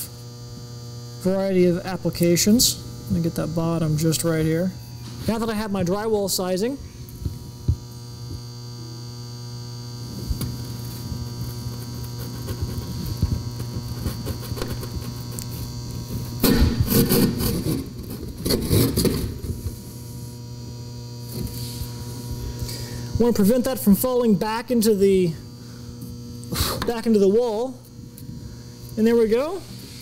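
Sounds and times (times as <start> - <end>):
electrical hum: 0.0 - 30.0
hand saw rasping through drywall: 11.8 - 15.5, 16.8 - 19.2.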